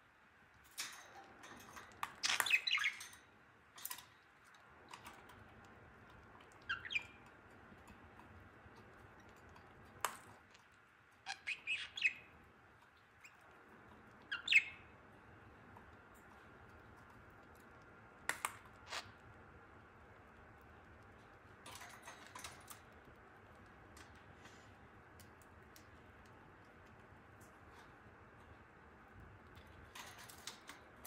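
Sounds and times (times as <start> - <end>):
budgerigar chirping: 11.3 - 12.2.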